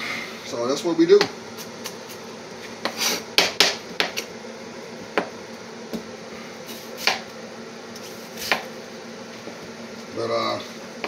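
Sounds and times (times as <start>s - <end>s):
knife chopping on cutting board: 2.8s - 4.3s, 7.0s - 7.3s, 8.4s - 8.7s.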